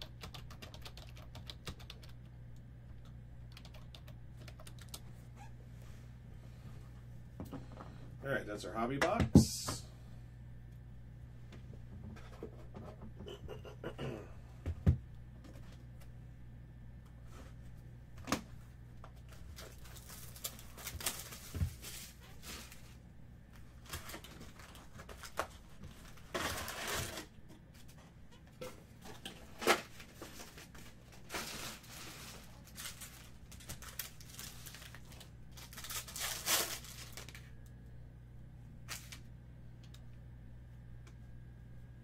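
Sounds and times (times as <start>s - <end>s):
card packs tearing and crinkling: 19.4s - 22.2s, 23.8s - 27.3s, 29.7s - 37.5s.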